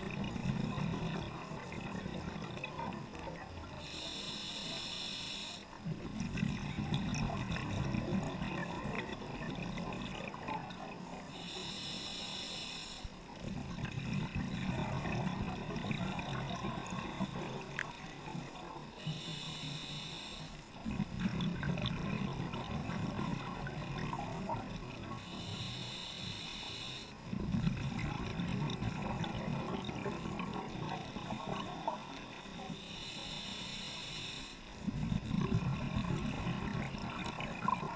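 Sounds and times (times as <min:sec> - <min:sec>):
exhaled air bubbling underwater: 0:00.0 - 0:37.9
regulator hissing inhale: 0:03.7 - 0:05.8, 0:11.2 - 0:13.5, 0:18.8 - 0:20.8, 0:25.1 - 0:27.3, 0:32.4 - 0:34.8.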